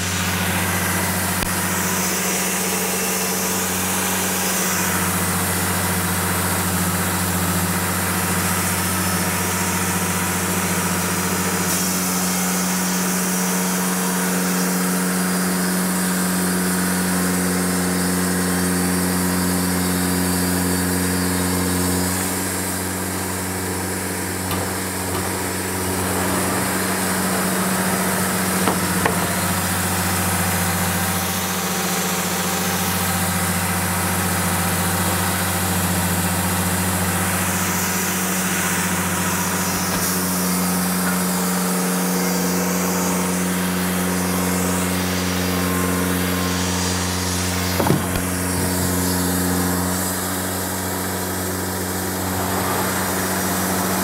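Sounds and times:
sawmill engine running: 0:00.0 - 0:54.0
band blade sawing log: 0:21.7 - 0:33.1, 0:46.2 - 0:50.4.

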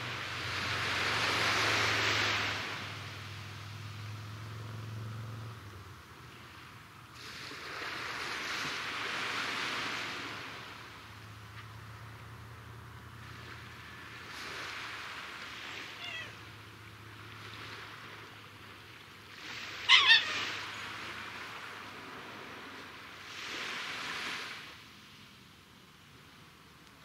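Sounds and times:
small waves washing onto shore: 0:00.0 - 0:27.0
animal call: 0:15.8 - 0:16.4, 0:19.6 - 0:20.9
two-note animal call: 0:19.9 - 0:20.6.

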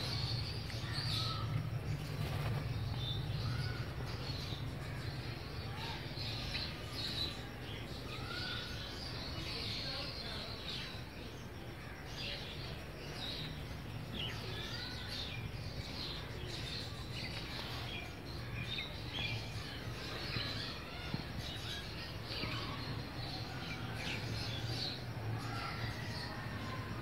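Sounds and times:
birds chirping and twittering: 0:00.0 - 0:27.0.

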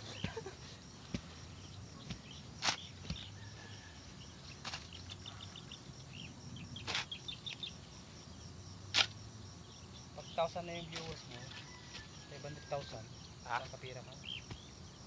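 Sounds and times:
faint bird chirps: 0:01.4 - 0:07.9
shovel scraping into soil: 0:02.0 - 0:03.7, 0:04.4 - 0:05.4, 0:06.8 - 0:07.6, 0:08.9 - 0:09.2, 0:10.9 - 0:12.2.

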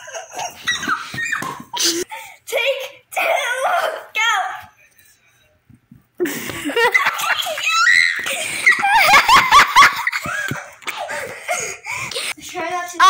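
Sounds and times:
children shrieking and laughing: 0:00.0 - 0:02.1, 0:06.9 - 0:11.8.

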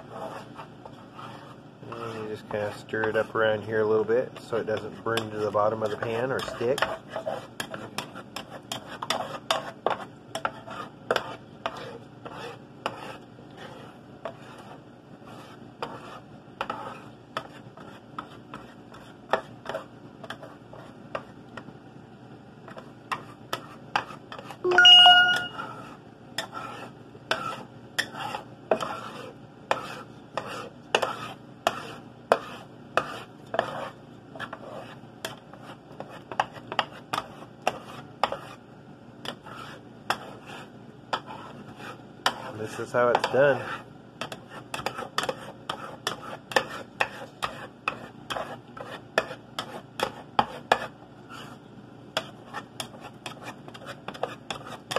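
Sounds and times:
utensil scraping a frying pan: 0:00.0 - 0:21.4, 0:22.7 - 0:24.6, 0:25.2 - 0:38.6, 0:39.2 - 0:51.6, 0:52.2 - 0:54.9
loud ringing tone: 0:24.6 - 0:25.8.

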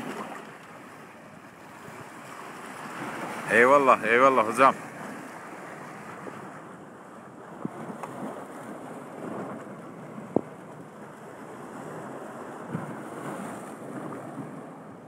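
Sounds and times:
sea waves washing: 0:00.0 - 0:15.0
wind on microphone: 0:04.5 - 0:15.0.

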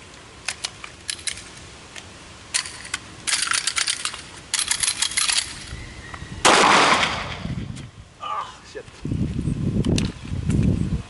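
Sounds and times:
metallic gun clicks and clacks: 0:00.4 - 0:01.5, 0:02.5 - 0:05.7
loud bang: 0:06.4 - 0:07.6.

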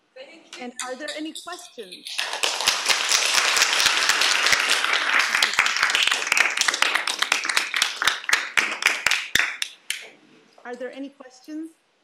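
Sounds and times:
audience applauding: 0:02.0 - 0:10.1.

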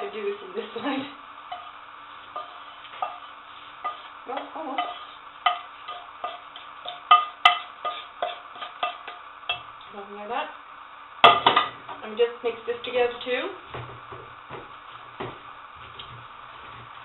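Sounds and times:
faint steady hum: 0:00.0 - 0:17.0
spatula scraping frying pan: 0:00.6 - 0:09.7.

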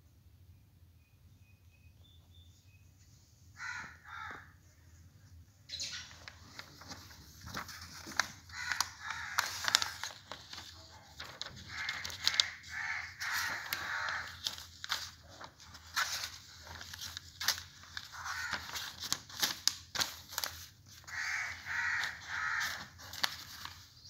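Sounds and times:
book pages rustling: 0:06.1 - 0:24.0.

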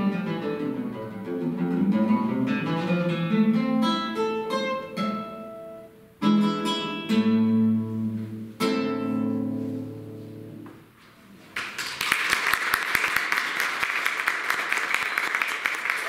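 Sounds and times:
classical guitar chords: 0:00.0 - 0:11.0
audience applause: 0:11.6 - 0:16.0.

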